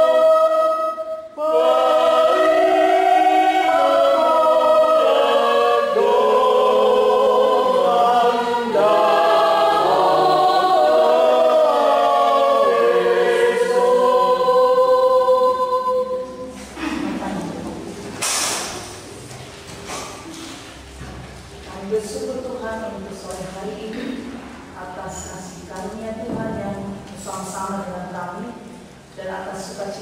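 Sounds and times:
women singing a hymn: 0:00.0 - 0:17.4.

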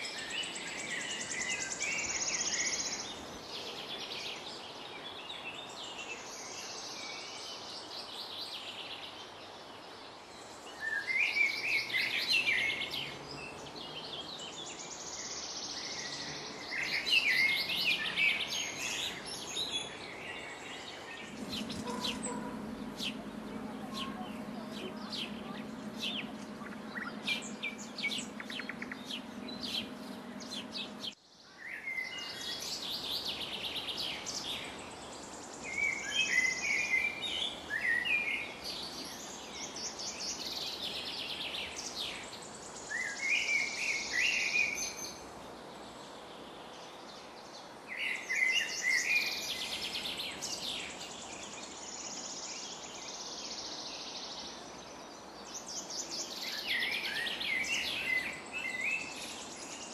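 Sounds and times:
birds chirping: 0:00.0 - 0:59.9
steady high hiss: 0:00.0 - 0:59.9
low hum: 0:20.9 - 0:31.2.

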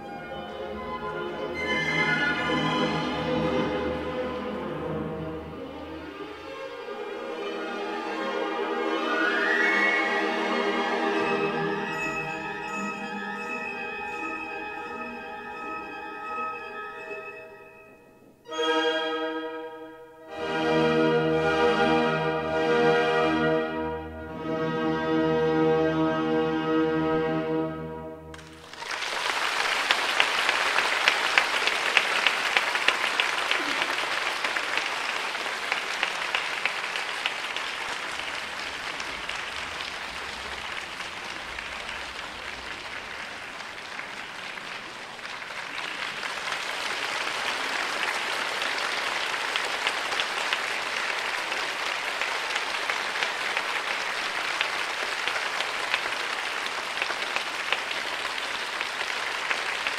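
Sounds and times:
orchestral music: 0:00.0 - 0:59.9
audience applauding: 0:28.3 - 0:59.9.

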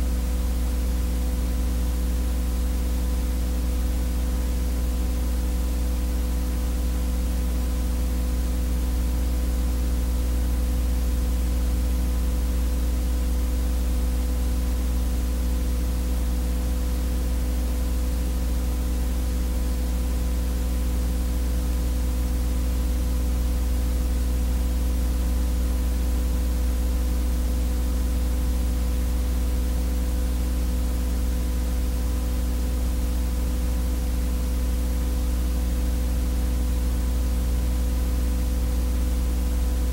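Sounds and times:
electrical buzz with hiss: 0:08.2 - 0:39.9.

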